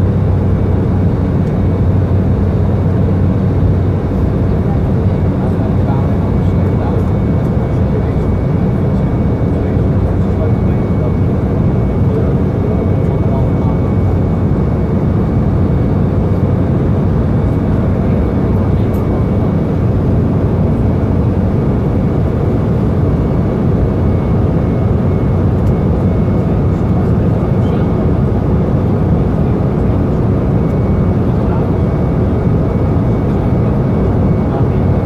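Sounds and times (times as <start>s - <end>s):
jet engine and airflow drone: 0.0s - 35.0s.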